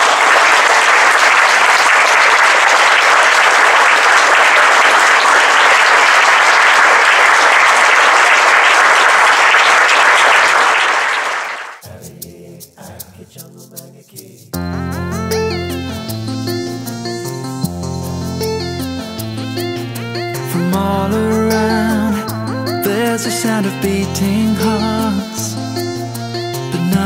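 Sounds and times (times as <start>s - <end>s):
audience applauding: 0.0s - 11.8s
music: 11.8s - 27.0s.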